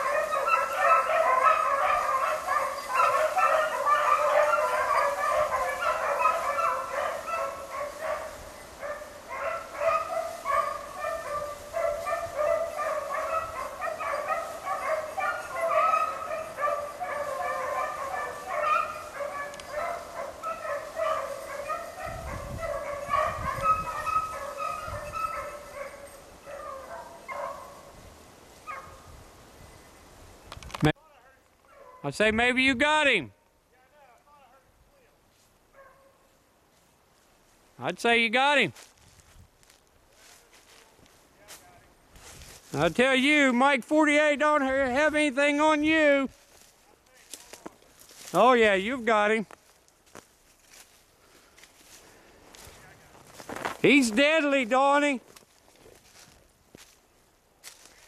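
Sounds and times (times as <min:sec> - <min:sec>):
beagles baying: 0:00.0 - 0:28.0, 0:28.6 - 0:29.2, 0:31.6 - 0:32.1, 0:53.4 - 0:55.2.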